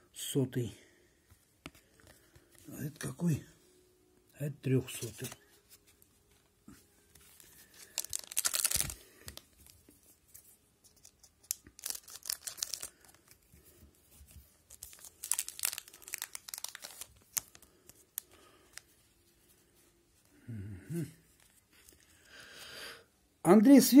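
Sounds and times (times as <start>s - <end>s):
card pack wrapper tearing: 7.2s - 9.8s, 10.9s - 13.4s, 14.7s - 18.8s.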